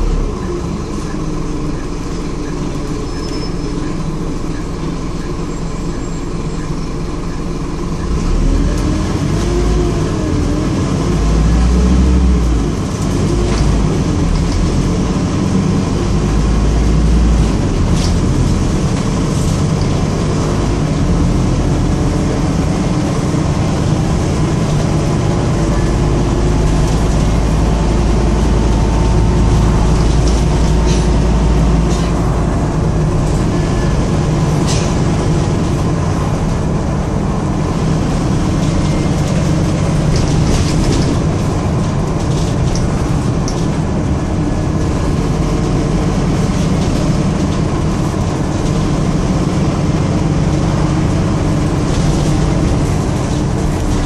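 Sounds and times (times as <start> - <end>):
bus diesel engine drone: 0.0 - 54.0
road noise: 0.0 - 54.0
bodywork rattles and clacks: 37.8 - 49.9.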